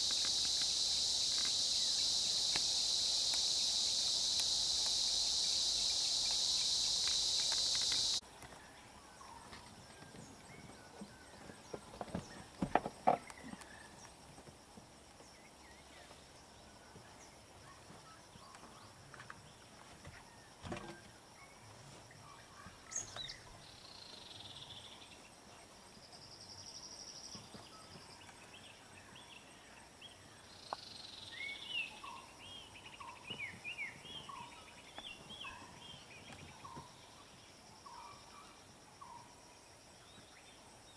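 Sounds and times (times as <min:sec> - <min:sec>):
birds chirping: 0:00.0 - 0:08.2
high-pitched insect buzzing: 0:00.0 - 0:08.2.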